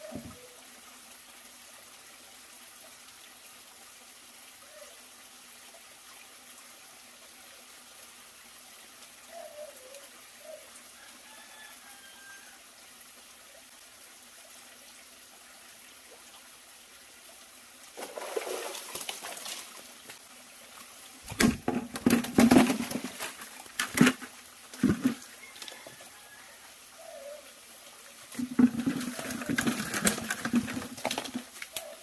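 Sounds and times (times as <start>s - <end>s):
stream trickling: 0.0s - 32.0s
knocks and rustles: 21.3s - 25.2s, 28.4s - 31.6s.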